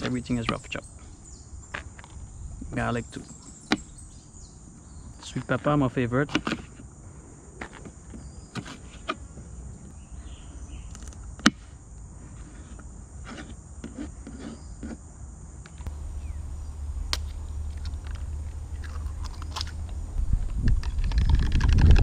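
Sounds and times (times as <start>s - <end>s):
steady high hiss: 15.9s - 20.7s
low rumble: 15.9s - 22.0s.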